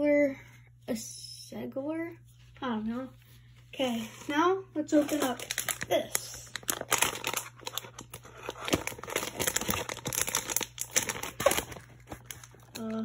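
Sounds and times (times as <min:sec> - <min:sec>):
packaging crinkling: 0:04.9 - 0:13.0
packaging tearing: 0:05.0 - 0:13.0.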